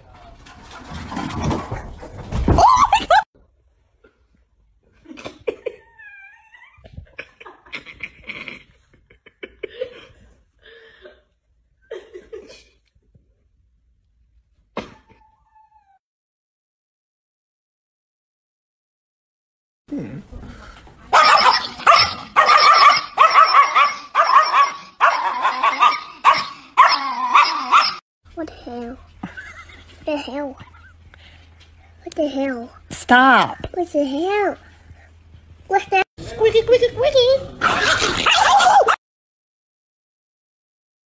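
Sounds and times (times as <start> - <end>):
small dog whining: 15.0 - 16.0
small dog yappy barking: 21.1 - 28.0.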